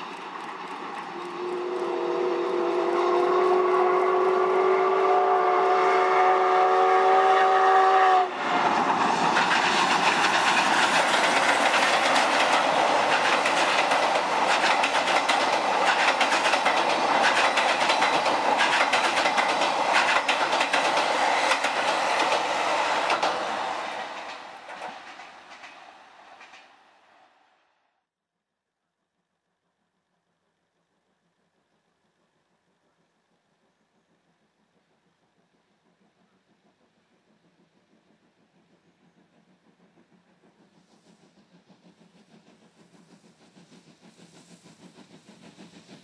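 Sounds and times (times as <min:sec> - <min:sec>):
train wheels rumbling on bridge: 0:00.0 - 0:27.0, 0:31.4 - 0:46.0
steam whistle chord: 0:01.1 - 0:08.5.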